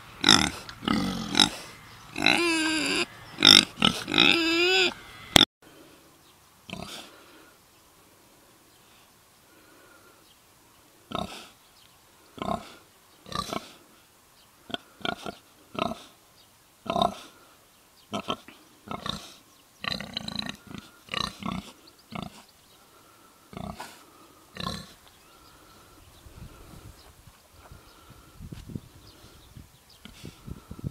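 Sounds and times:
pigs grunting: 0.2s - 5.4s, 6.7s - 7.2s, 11.1s - 11.5s, 12.4s - 13.8s, 14.7s - 16.1s, 16.9s - 17.4s, 18.1s - 22.4s, 23.5s - 25.0s.

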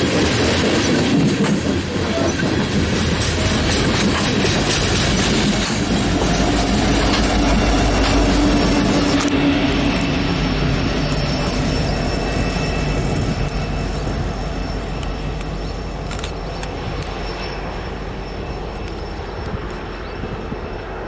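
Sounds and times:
wheels on rails: 0.0s - 20.1s
locomotive engine rumble: 0.0s - 21.0s
faint high whine: 8.8s - 21.0s.

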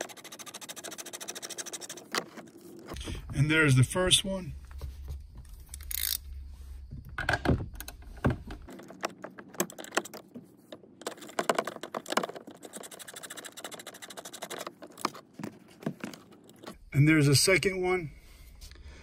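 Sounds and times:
socket wrench ratchet clicking: 5.8s - 6.2s.

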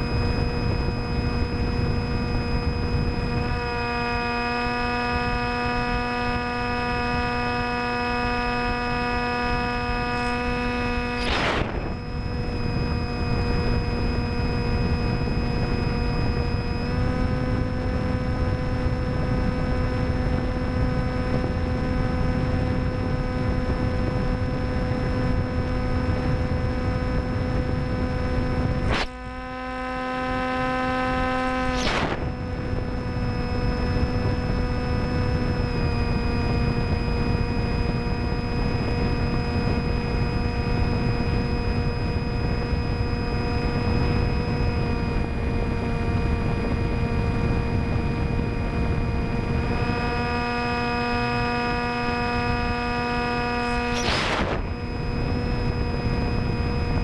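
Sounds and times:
electric motor and propeller buzzing: 0.0s - 57.0s
wind rush: 8.9s - 16.4s, 31.6s - 34.6s, 52.6s - 57.0s
brief sweeping sound: 10.1s - 12.0s, 31.6s - 32.4s.

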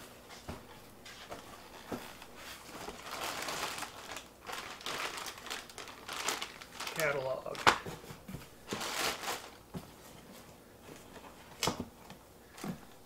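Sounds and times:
plastic bag crinkling: 2.6s - 7.9s, 8.7s - 9.7s.

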